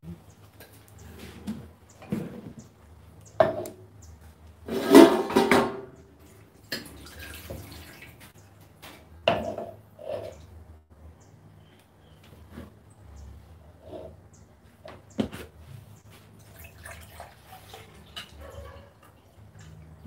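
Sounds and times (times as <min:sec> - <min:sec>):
dishes and utensils clattering: 0:04.7 - 0:06.0.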